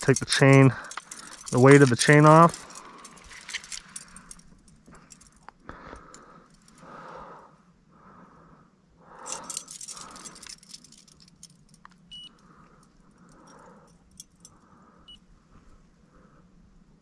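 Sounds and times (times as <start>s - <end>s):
metal chain jingling: 0.0s - 5.4s, 9.2s - 11.8s.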